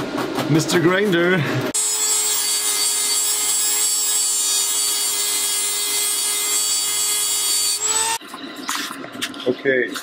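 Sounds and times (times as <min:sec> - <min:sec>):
rotary tool grinding metal: 0:01.8 - 0:08.2.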